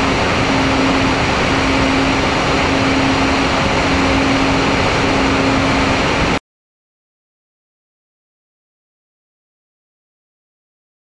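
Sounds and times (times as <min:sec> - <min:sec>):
electric motors and propellers humming: 0:00.0 - 0:06.4
wind rushing over camera: 0:00.0 - 0:06.4.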